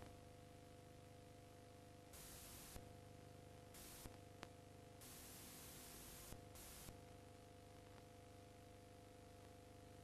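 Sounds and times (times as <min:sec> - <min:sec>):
videotape hiss: 0:02.0 - 0:03.0, 0:03.6 - 0:08.4.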